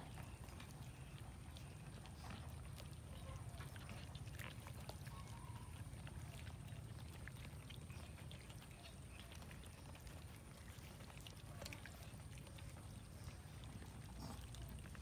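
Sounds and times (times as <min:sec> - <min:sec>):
cats chewing and crunching: 0:00.0 - 0:15.0.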